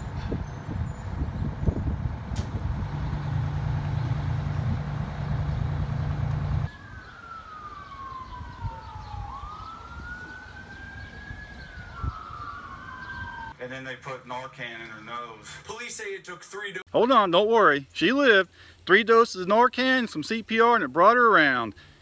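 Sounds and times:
heavy engine running: 1.1s - 6.7s
emergency siren wailing: 1.9s - 13.6s.

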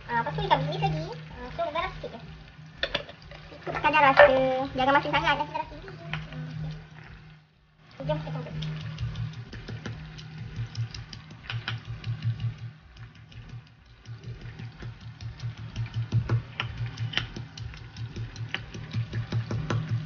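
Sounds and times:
pestle pounding in stone mortar: 13.4s - 20.0s.

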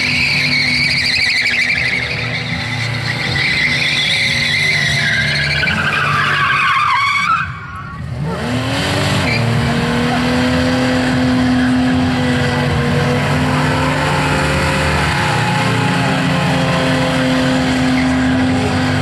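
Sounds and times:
tyres squealing: 0.0s - 8.1s
car engine revving: 0.0s - 19.0s.

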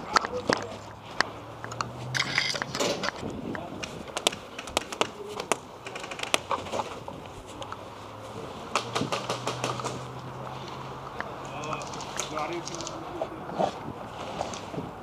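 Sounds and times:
rustling of clothing and gear: 0.0s - 15.0s
sharp clicks and knocks: 8.7s - 10.1s.

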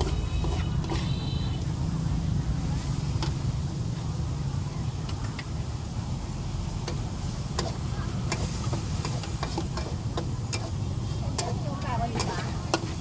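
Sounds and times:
metal spatula scraping wok: 0.0s - 1.7s, 7.4s - 13.0s.

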